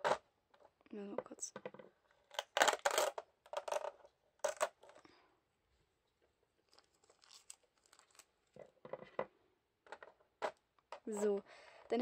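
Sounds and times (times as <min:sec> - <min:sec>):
plastic packaging crinkling: 0:06.6 - 0:08.6.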